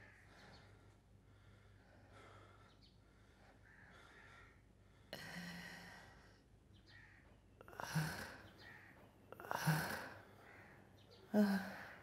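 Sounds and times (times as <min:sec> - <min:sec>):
man breathing laboriously: 0:00.0 - 0:06.6.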